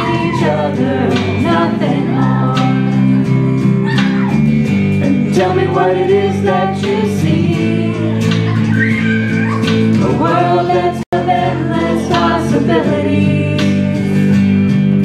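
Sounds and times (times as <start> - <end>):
congregation singing along: 0.0 - 3.2, 5.0 - 8.2, 9.9 - 14.1
woman singing into microphone: 0.0 - 3.4, 5.1 - 8.6, 10.0 - 14.4
guitar strumming: 0.0 - 15.0.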